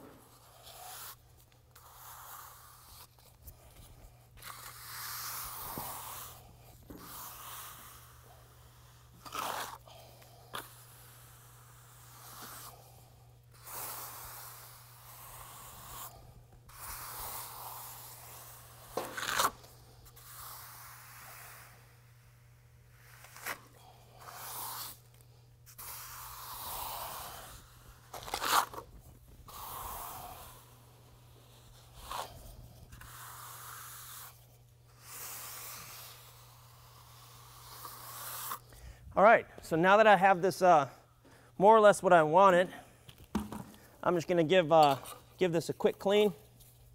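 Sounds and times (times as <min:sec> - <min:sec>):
trowel scraping concrete: 0:00.0 - 0:03.4, 0:04.4 - 0:09.8, 0:13.6 - 0:21.8, 0:25.7 - 0:28.8, 0:29.5 - 0:34.4.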